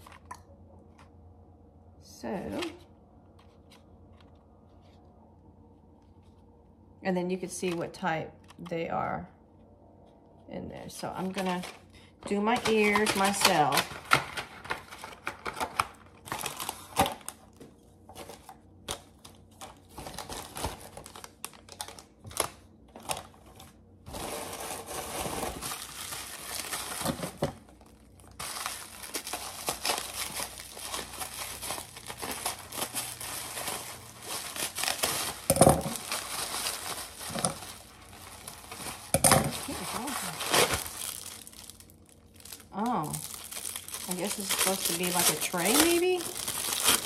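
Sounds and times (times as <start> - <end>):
packaging crinkling: 11.2 - 47.0.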